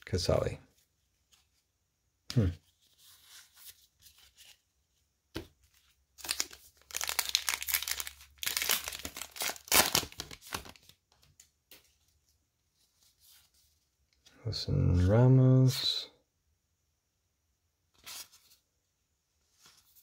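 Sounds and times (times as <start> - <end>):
plastic wrapper ripping: 6.2 - 10.9
plastic wrapper crinkling: 6.2 - 11.0.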